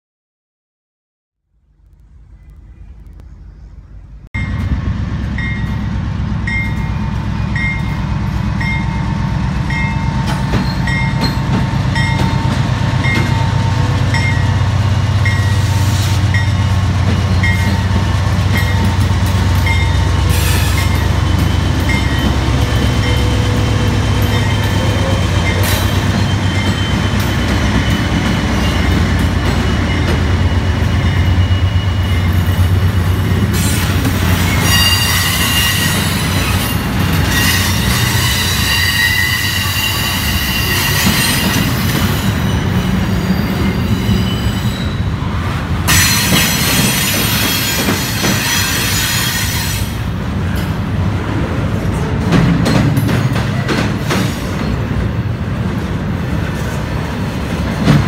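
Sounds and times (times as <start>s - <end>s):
diesel train low rumble: 1.4s - 58.0s
high wheel squeal: 19.9s - 29.0s, 29.7s - 45.3s, 45.9s - 50.0s.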